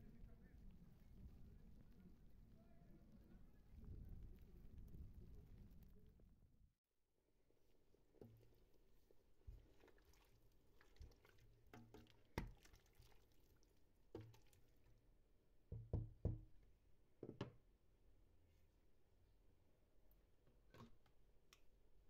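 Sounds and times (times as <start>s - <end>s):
spoon stirring pork fat in pot: 7.8s - 13.4s.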